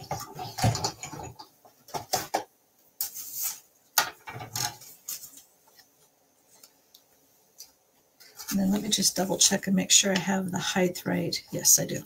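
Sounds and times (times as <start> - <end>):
paper rustling: 3.0 - 3.7, 4.5 - 6.8.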